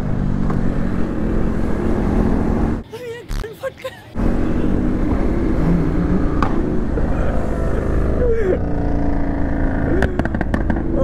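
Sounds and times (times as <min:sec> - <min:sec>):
motorcycle engine: 0:04.2 - 0:11.0.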